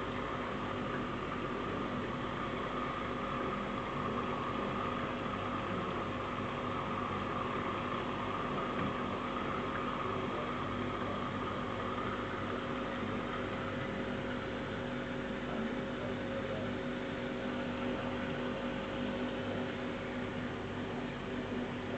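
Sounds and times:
aquarium pump hum: 0:00.0 - 0:21.9.

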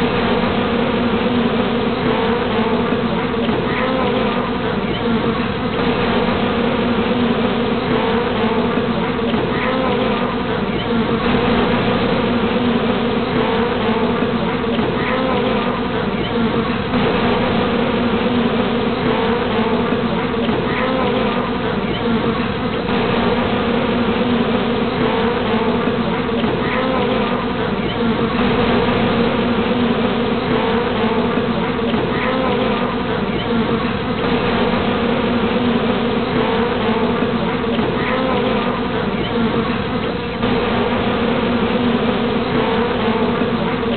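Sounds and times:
bee swarm buzzing: 0:16.9 - 0:21.7, 0:22.9 - 0:27.6, 0:28.2 - 0:33.1, 0:34.2 - 0:39.1.

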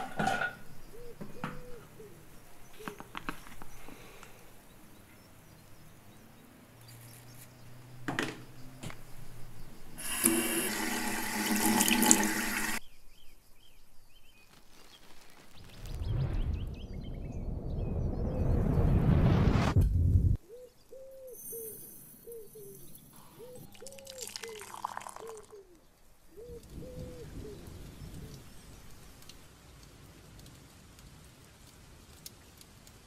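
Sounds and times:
tap water running into sink: 0:10.0 - 0:12.8
low rumble: 0:15.7 - 0:20.4.

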